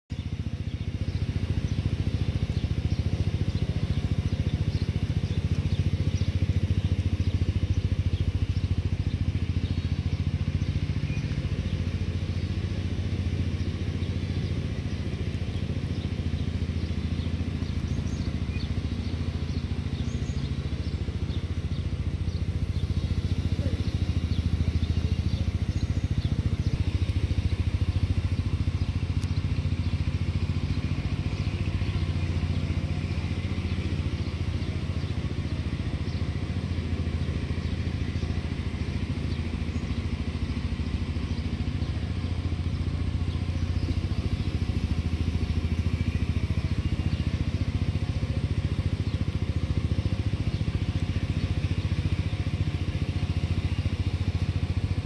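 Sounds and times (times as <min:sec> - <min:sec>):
motor humming: 0:00.6 - 0:35.4
faint ticks: 0:29.1 - 0:29.4.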